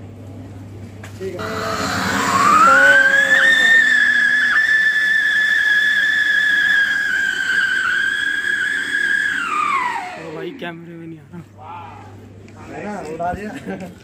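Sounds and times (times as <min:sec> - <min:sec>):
firecracker high whistle: 0:01.4 - 0:10.4.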